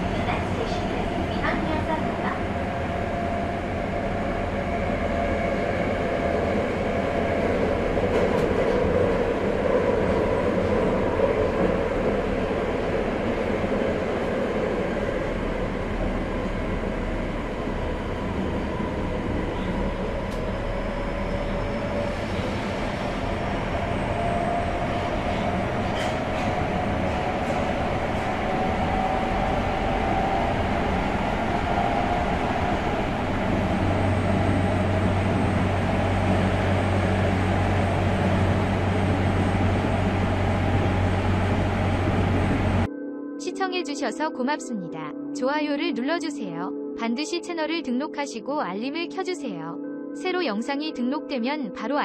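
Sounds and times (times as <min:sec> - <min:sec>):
subway train rumble: 0:00.0 - 0:42.9
low hum: 0:02.6 - 0:42.9.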